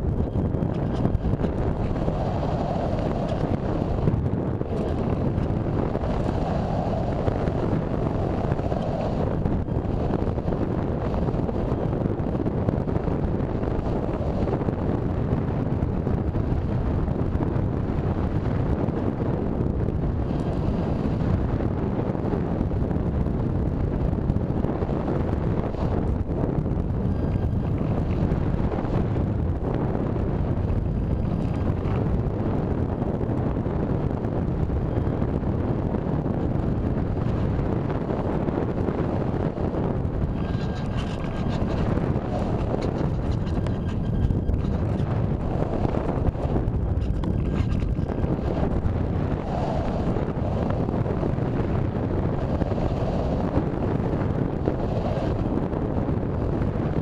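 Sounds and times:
airflow rushing over microphone: 0.0s - 57.0s.

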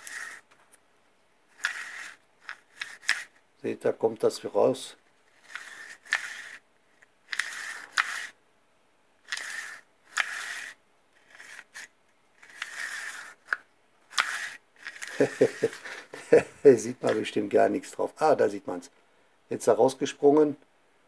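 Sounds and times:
recoil starter cord rasping: 0.0s - 0.5s, 1.6s - 3.3s, 9.3s - 16.1s.

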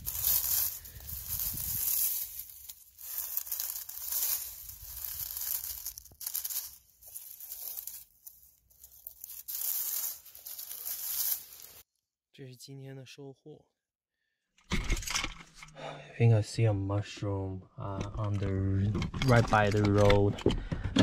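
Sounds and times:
dry leaves rustling and crackling: 0.0s - 11.8s.

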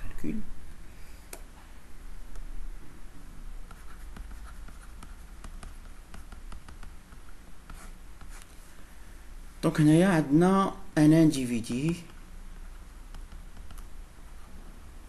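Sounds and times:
low steady hum: 0.0s - 15.0s
stylus scratching on tablet: 3.6s - 8.5s, 11.7s - 13.9s.

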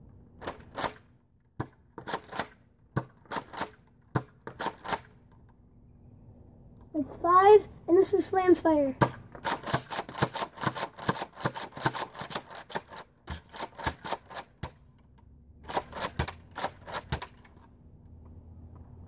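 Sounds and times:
toy blaster plastic clacks: 9.4s - 14.8s, 15.7s - 17.6s.

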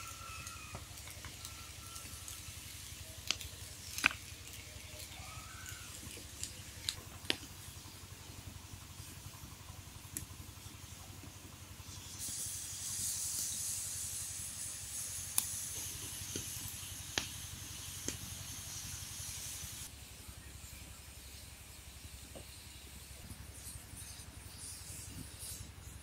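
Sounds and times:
bamboo popping in fire: 0.0s - 19.9s
fire hissing: 0.0s - 26.0s.

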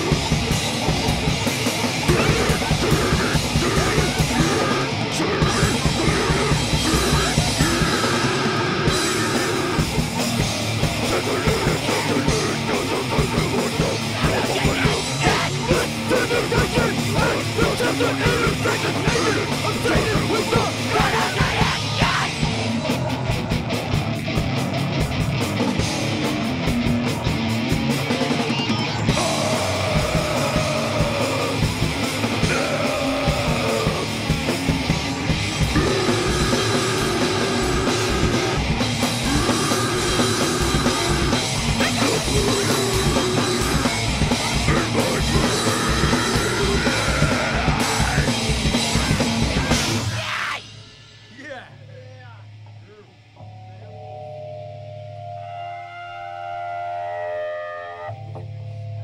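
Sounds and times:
fast drums: 0.0s - 53.3s
distorted guitars and bass: 0.0s - 59.0s
shouted vocals: 2.0s - 10.0s, 11.0s - 23.4s, 28.5s - 34.5s, 35.7s - 50.7s.

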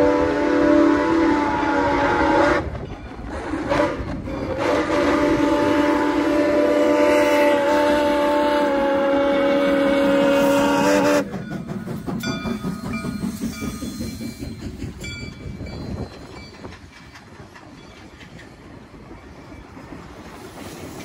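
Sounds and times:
steam whistle: 0.0s - 2.8s, 3.4s - 11.3s
steam locomotive rumbling past: 0.0s - 21.0s.

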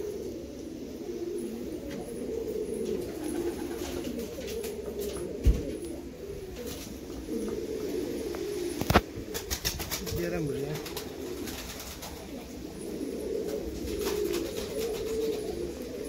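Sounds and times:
pigeon cooing: 0.0s - 16.0s
dull low thump: 5.4s - 5.7s.

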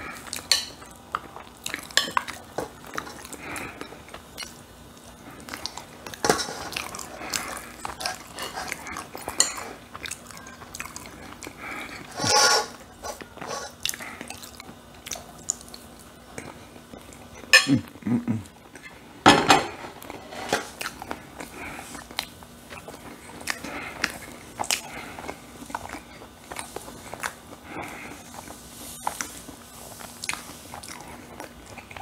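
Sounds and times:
person chewing: 0.0s - 19.1s, 20.0s - 32.0s
fork clinking on a plate: 17.5s - 17.8s
dish clattering on a table: 19.2s - 20.7s.

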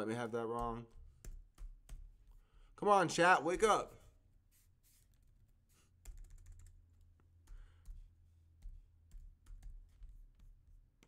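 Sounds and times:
faint keyboard typing: 0.6s - 2.4s, 4.9s - 11.0s.

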